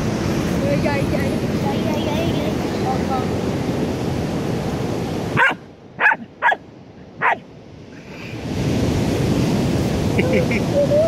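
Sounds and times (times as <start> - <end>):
small dog yipping barks: 5.4 - 6.6, 7.2 - 7.4.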